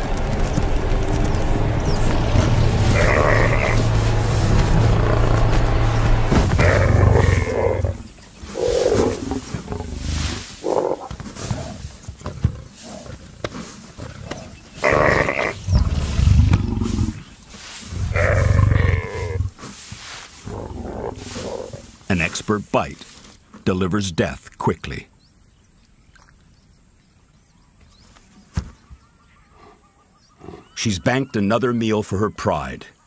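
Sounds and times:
lioness growling and snarling: 0:02.3 - 0:17.3, 0:17.9 - 0:19.6, 0:20.4 - 0:22.0.

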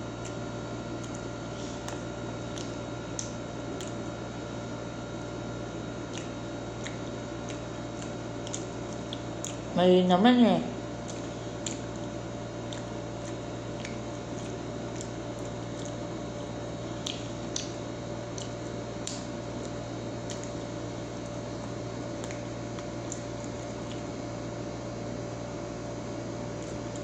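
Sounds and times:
wet chewing squishes: 0:00.0 - 0:09.8, 0:10.7 - 0:27.0
air conditioner humming: 0:00.0 - 0:27.0.

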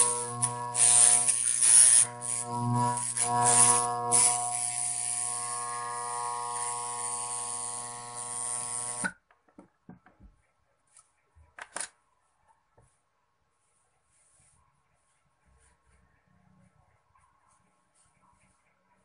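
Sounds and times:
hacksaw blade buzzing on metal: 0:00.0 - 0:09.1.

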